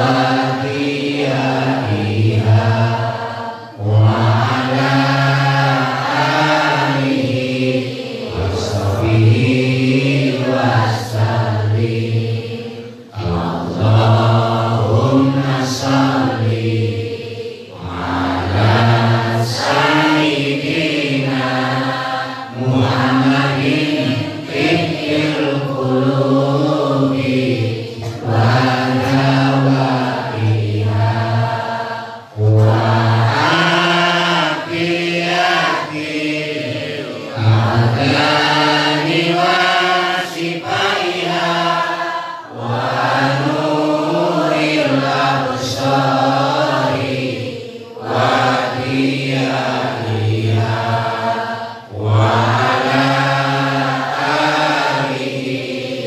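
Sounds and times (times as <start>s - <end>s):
man chanting into a microphone: 0.0s - 16.9s, 22.5s - 31.6s, 32.3s - 41.7s, 51.9s - 55.2s.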